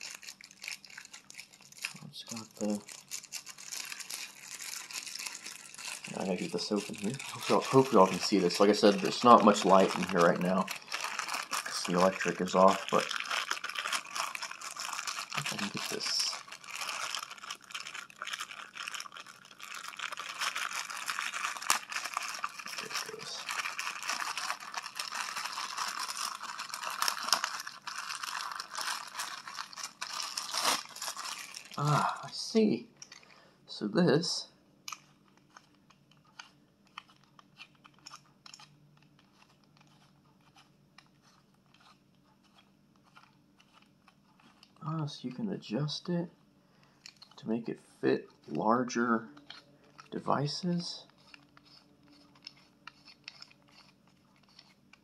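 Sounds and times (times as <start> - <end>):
plastic bag crinkling: 0.0 - 32.3, 51.0 - 55.0.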